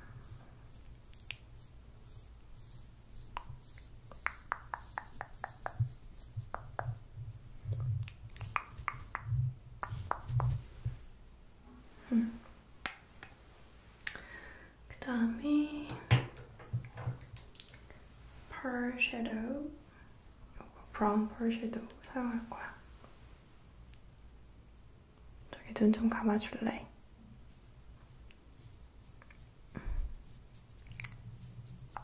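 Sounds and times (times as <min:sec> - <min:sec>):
makeup brush clicks and taps: 0:04.2 - 0:07.0.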